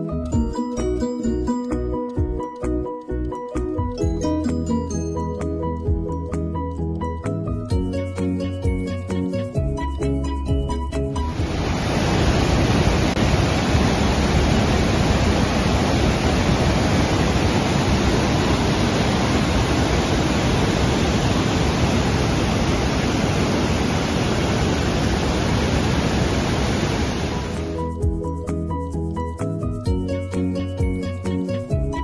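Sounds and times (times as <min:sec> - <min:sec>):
river rushing over rapids: 0:11.2 - 0:27.8.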